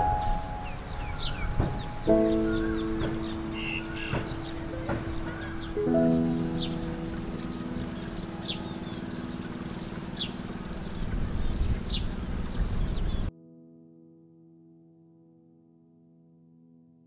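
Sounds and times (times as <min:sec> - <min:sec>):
bird high falling call: 0:00.0 - 0:12.1
faint bird chirps: 0:00.0 - 0:13.3
low outdoor rumble: 0:00.0 - 0:13.3.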